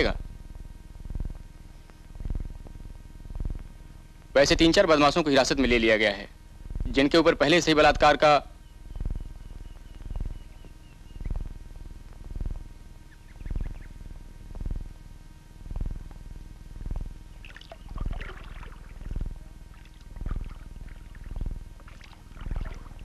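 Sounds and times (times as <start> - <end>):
oars pulling through water: 17.4 - 23.0.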